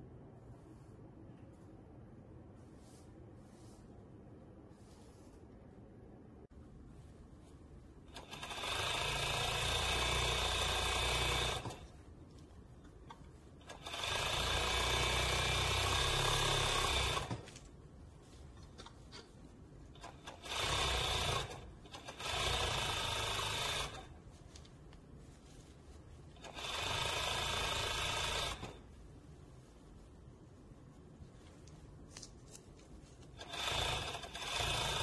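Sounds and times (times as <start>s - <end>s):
overlock sewing machine running: 8.1s - 11.9s, 13.6s - 17.5s, 20.0s - 24.2s, 26.4s - 28.8s, 33.4s - 35.0s.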